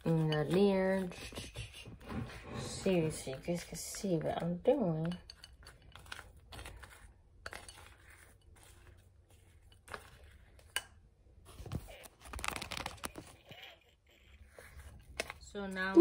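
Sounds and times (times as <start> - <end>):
spoon scraping in bowl: 0.0 - 11.0.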